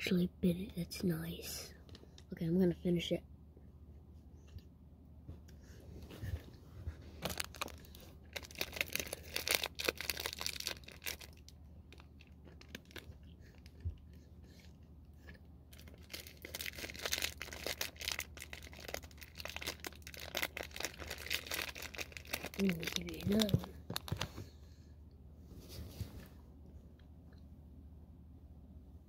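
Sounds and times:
steady low hum: 0.0 - 29.0
plastic wrapper crinkling and tearing: 7.2 - 13.8, 15.7 - 24.4.

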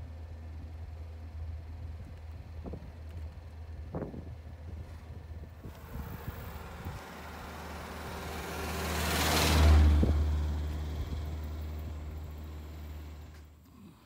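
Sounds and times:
sports car driving past: 5.7 - 13.4.

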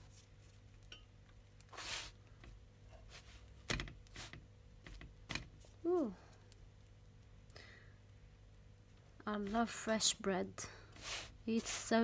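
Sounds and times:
soft swish of bread in pan: 0.0 - 0.9, 1.6 - 2.2, 2.8 - 4.5, 11.0 - 12.0.

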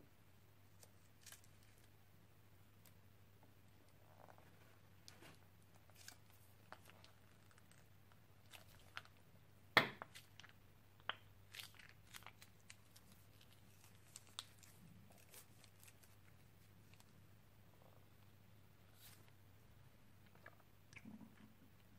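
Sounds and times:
slime crackling and popping: 5.0 - 9.2, 9.8 - 17.1.

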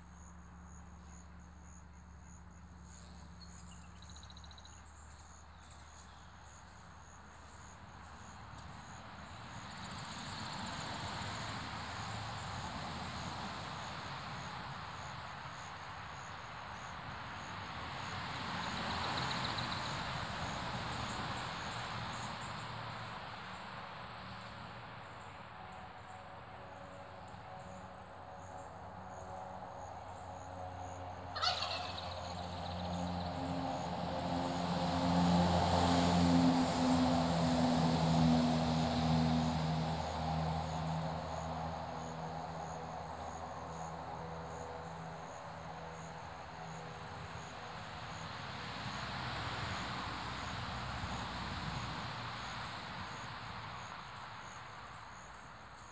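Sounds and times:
low engine hum: 18.8 - 53.7
turkey gobble: 31.3 - 32.7.

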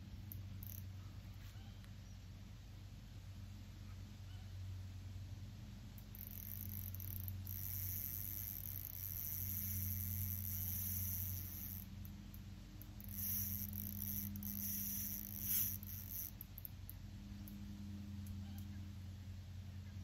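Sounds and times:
steady low hum: 0.0 - 20.0
fishing reel whirring: 0.3 - 0.9, 6.0 - 16.9.

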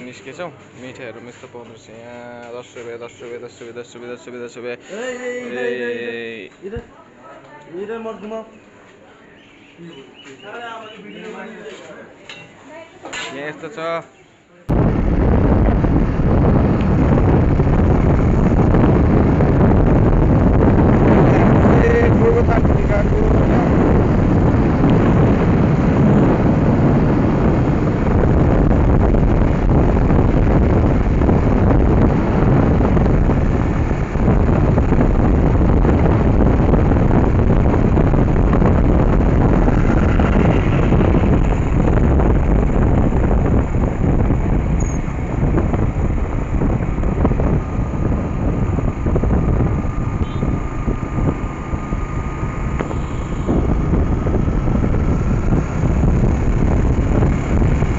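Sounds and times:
wind rushing over microphone: 14.7 - 57.9
motorcycle engine running: 14.8 - 57.9.

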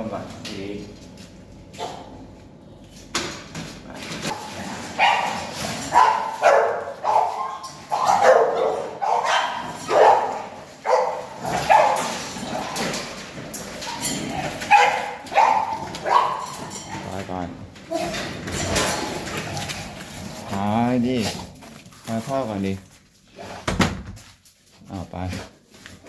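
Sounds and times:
dog barking and yelping: 4.3 - 12.1, 13.8 - 16.8.

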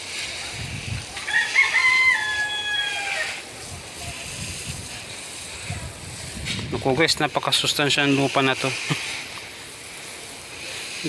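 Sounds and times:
hose spraying water onto soil: 0.0 - 11.0
rooster crowing: 1.2 - 3.4.

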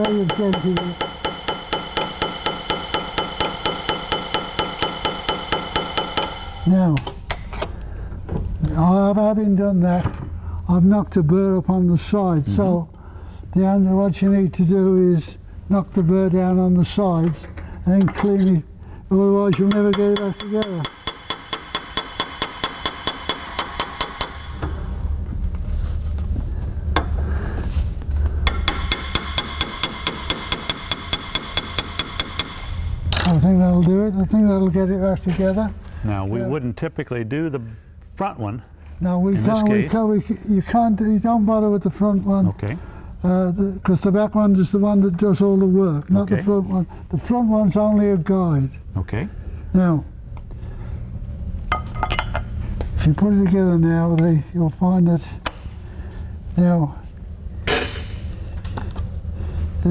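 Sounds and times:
hammer tapping on metal: 0.0 - 7.2, 19.4 - 24.8, 28.4 - 33.3.

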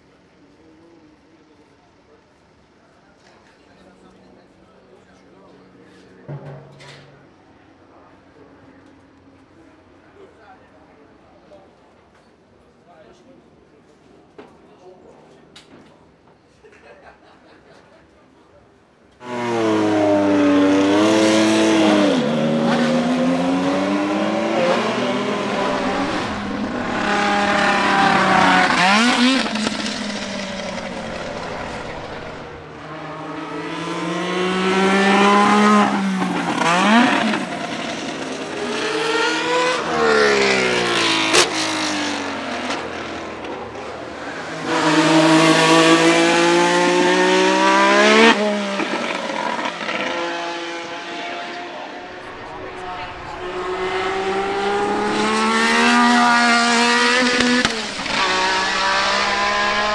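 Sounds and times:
racing car engine accelerating: 19.3 - 43.2, 44.2 - 59.9.

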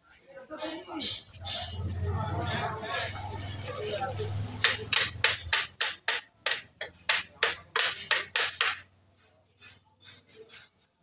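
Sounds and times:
hammer striking metal: 4.6 - 8.9.

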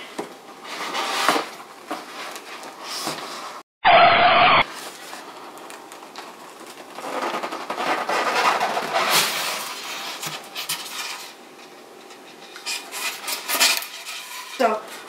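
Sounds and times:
foam lid scraping: 7.0 - 11.4.

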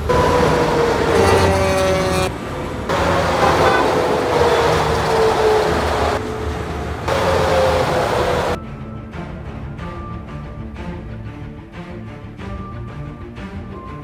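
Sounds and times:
trucks passing at highway speed: 0.0 - 8.6.

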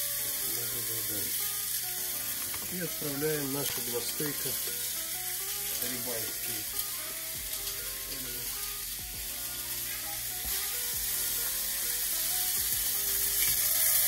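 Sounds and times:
steaks sizzling in a pan: 0.0 - 14.0
plastic packaging crinkling: 2.3 - 4.8.

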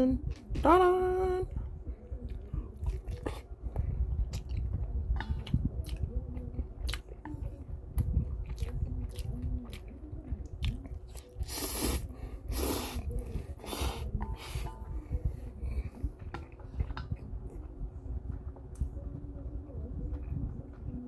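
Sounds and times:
wet chewing and lip smacks: 2.2 - 7.3, 7.9 - 11.9
slurping noodles: 11.4 - 13.0.

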